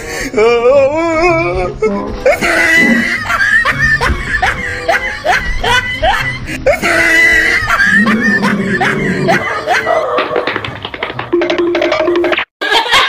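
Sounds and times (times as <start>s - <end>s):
comedy soundtrack music: 0.0s - 13.0s
dubbed laughing sound effect: 1.8s - 10.8s.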